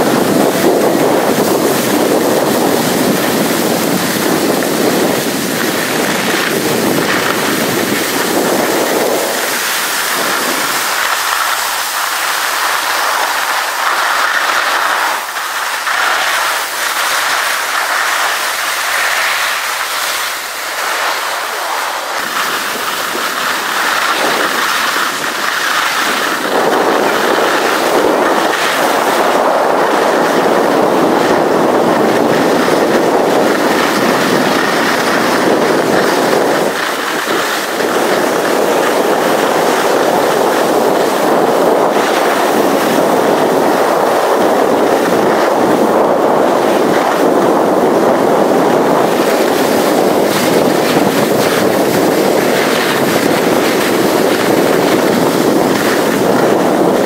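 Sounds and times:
skis sliding over snow: 0.0s - 57.0s
wind rushing over microphone: 0.0s - 57.0s.

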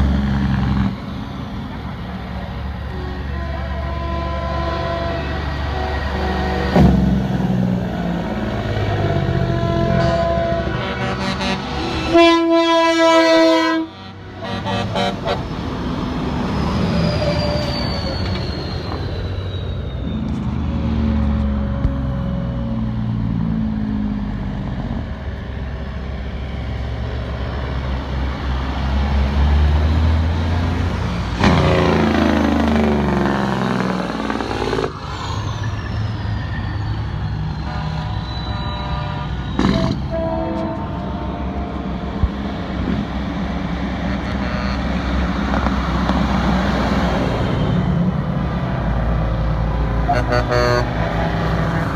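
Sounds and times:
truck diesel engines passing: 0.0s - 51.9s
truck air horn blasting: 2.8s - 7.0s, 9.0s - 15.6s, 37.6s - 42.3s, 44.0s - 45.3s, 50.0s - 51.1s.

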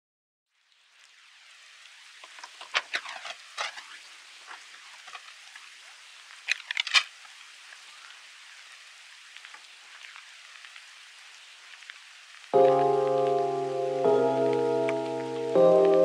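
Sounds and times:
water drops pattering: 12.6s - 16.0s.

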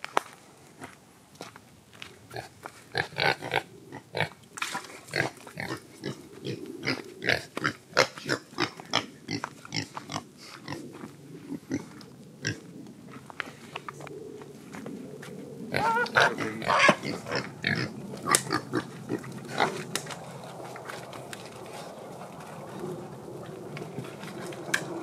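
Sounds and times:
pigs grunting: 2.3s - 12.7s, 15.7s - 25.0s
pigs crunching and chewing: 4.2s - 14.2s, 15.2s - 25.0s.

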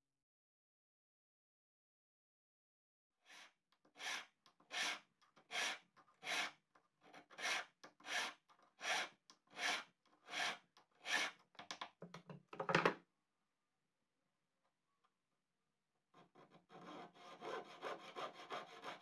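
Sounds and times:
hand file scraping metal: 3.3s - 11.5s, 16.2s - 19.0s.

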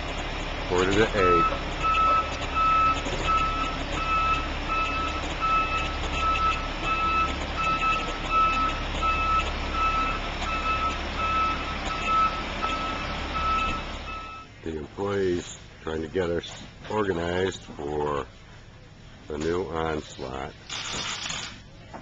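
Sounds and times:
truck engine running: 0.0s - 15.8s
truck backup alarm beeping: 0.6s - 14.6s.

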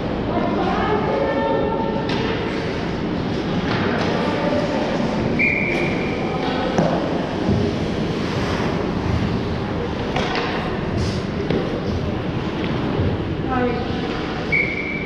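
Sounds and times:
hockey sticks and puck clacking: 6.4s - 9.3s, 10.0s - 13.0s
skates scraping ice: 6.7s - 12.9s.

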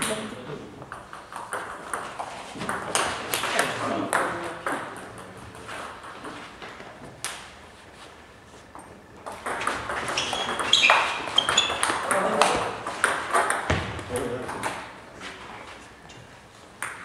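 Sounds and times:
short high squeaks: 10.1s - 11.9s.

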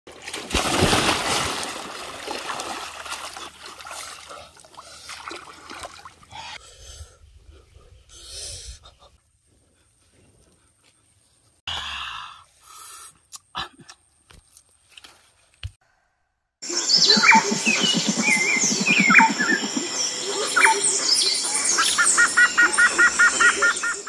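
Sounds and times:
water splashing and sloshing: 0.1s - 6.5s.

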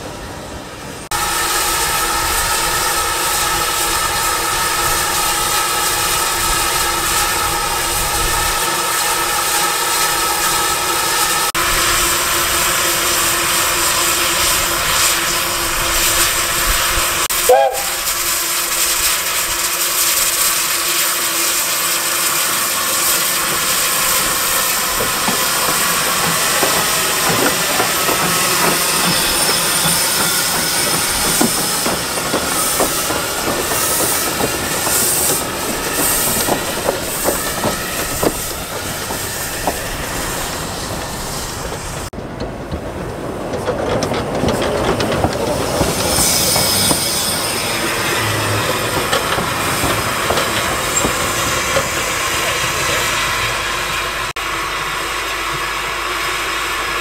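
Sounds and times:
steam hissing: 1.0s - 42.1s, 44.4s - 57.0s
wheels squealing: 1.5s - 42.6s, 43.2s - 54.3s
wheels clicking over rails: 24.2s - 53.0s.

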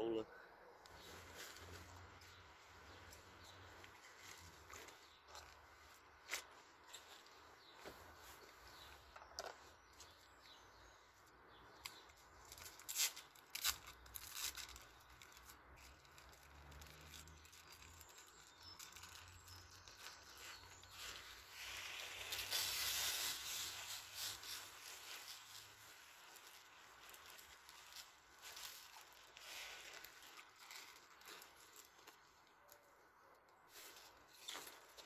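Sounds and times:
packet crinkling and tearing: 11.9s - 20.8s, 22.0s - 32.5s.

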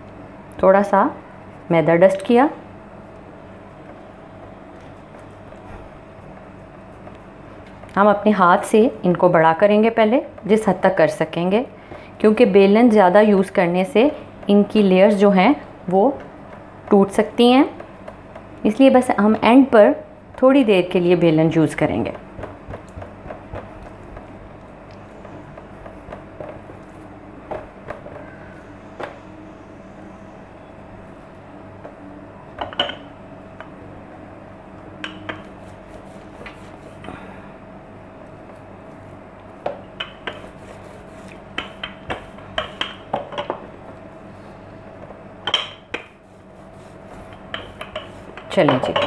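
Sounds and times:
steady background hum: 0.0s - 49.0s
rolling pin knocking: 22.0s - 24.4s
hands patting dough on table: 22.1s - 28.2s.

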